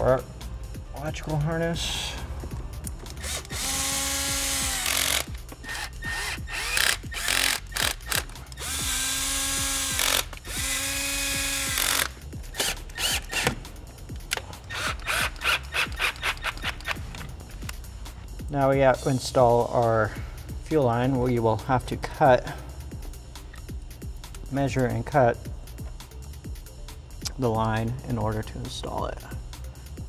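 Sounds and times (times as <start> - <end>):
cordless drill driving bolts: 3.2 - 13.6, 14.7 - 17.0
tools clicking and knocking: 11.6 - 17.8.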